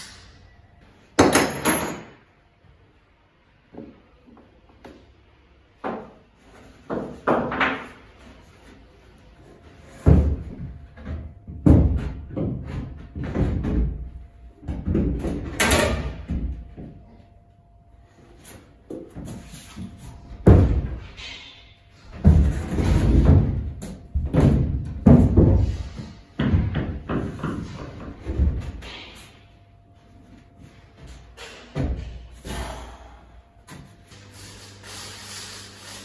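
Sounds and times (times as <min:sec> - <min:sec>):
heavy thuds: 0:19.0 - 0:29.4.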